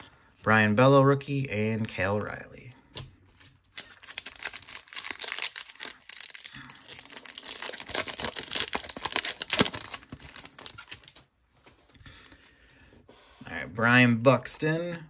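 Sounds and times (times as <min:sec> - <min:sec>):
foil wrapper crinkling: 0:03.6 - 0:11.3.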